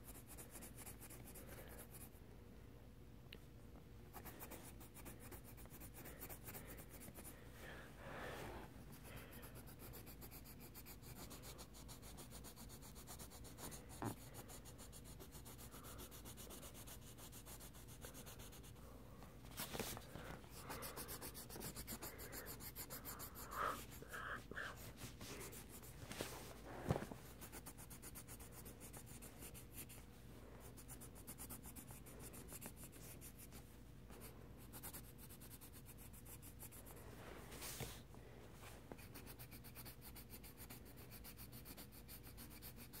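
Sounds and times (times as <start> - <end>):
pencil scribbling on paper: 0.0 - 2.2, 4.1 - 7.4, 8.9 - 18.8, 20.5 - 26.0, 27.3 - 30.1, 30.7 - 33.6, 34.2 - 37.0, 39.0 - 43.0.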